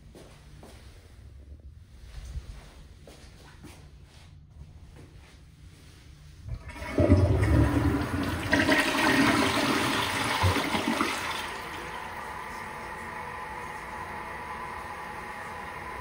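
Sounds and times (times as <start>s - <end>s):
water rushing through toilet bowl: 6.5s - 16.0s
toilet flush click: 6.6s - 16.0s.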